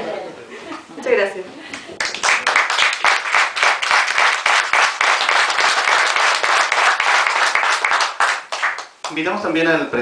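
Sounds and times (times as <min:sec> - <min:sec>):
hand claps: 0:01.7 - 0:09.2
audience applauding: 0:02.0 - 0:09.2.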